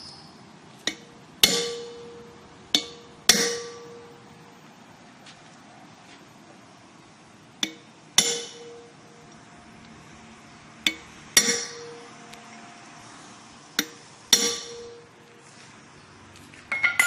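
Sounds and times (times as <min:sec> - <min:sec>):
hammer striking steel punch: 0:00.8 - 0:04.1, 0:07.6 - 0:08.9, 0:10.8 - 0:12.0, 0:13.8 - 0:15.0.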